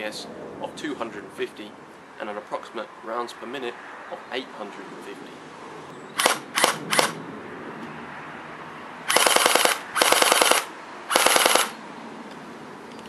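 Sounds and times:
airsoft machine gun bursts: 6.2 - 7.2, 9.1 - 11.8.

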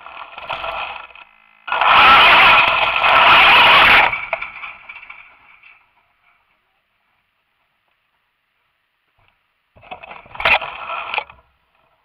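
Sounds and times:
toy car motor whining: 0.0 - 4.8
tyre and ground noise: 0.0 - 12.0.

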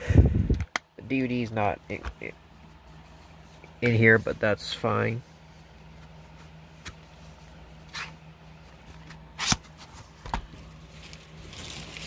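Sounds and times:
soft rustling: 2.2 - 9.1.

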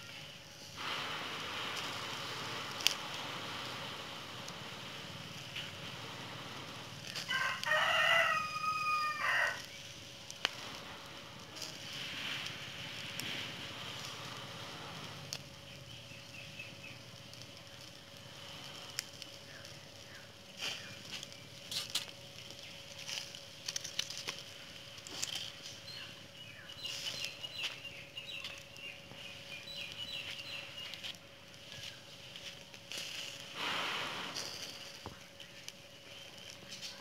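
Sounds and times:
fire crackling and popping: 0.0 - 37.0
birds chirping: 13.4 - 23.4, 24.5 - 32.8, 33.4 - 37.0
short rushing noise: 33.6 - 34.8.

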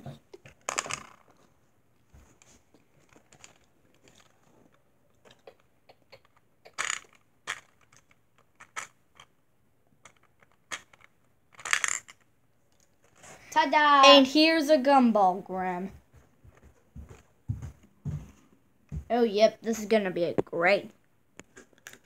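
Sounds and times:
gumball machine clicks and rattles: 6.2 - 9.0, 10.0 - 12.2.

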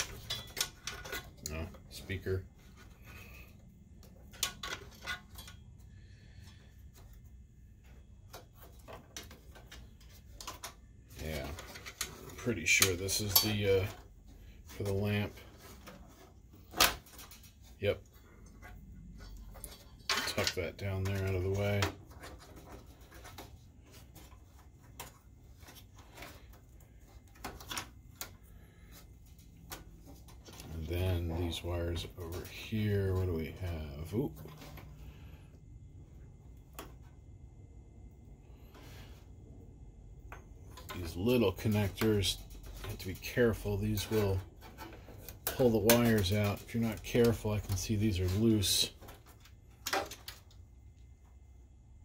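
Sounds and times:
clicks and rustles of plastic parts: 0.0 - 37.4, 40.1 - 51.7
faint low hum: 0.0 - 52.0.

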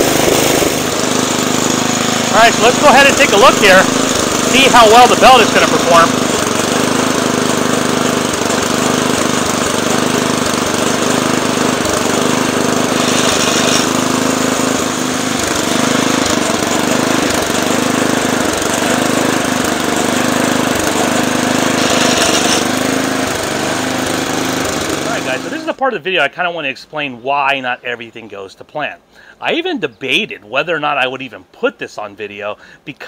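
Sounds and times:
lawn mower engine running rough: 0.0 - 25.8.

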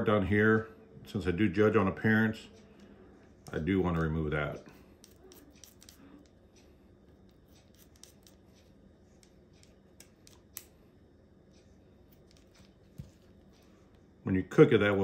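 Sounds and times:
kitchen shears snipping: 7.3 - 8.4.

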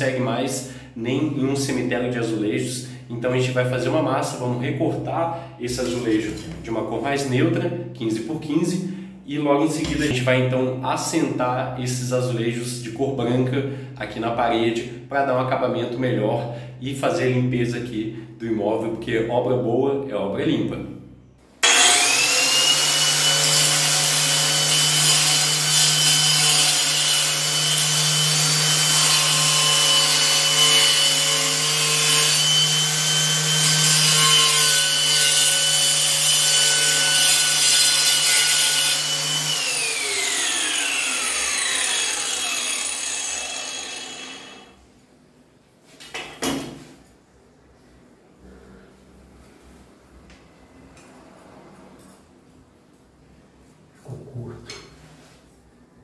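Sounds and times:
angle grinder cutting tile: 21.6 - 44.8.

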